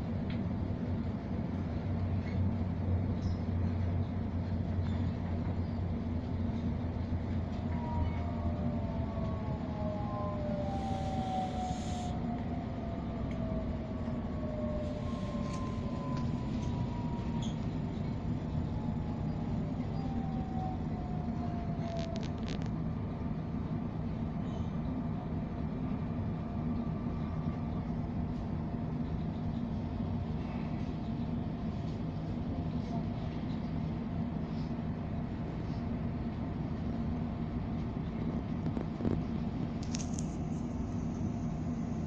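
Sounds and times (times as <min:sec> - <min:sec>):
train rumbling on rails: 0:00.0 - 0:42.0
faint whining tones: 0:03.1 - 0:25.1.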